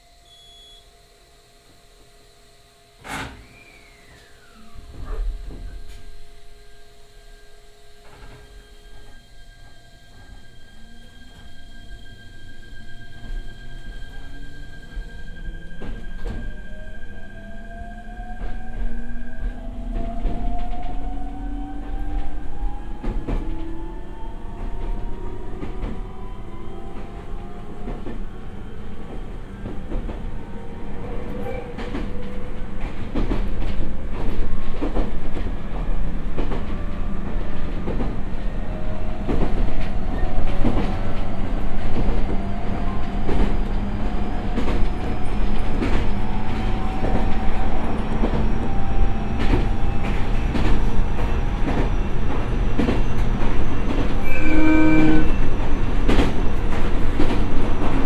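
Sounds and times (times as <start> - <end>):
electric train motors whining: 0.2 - 16.4.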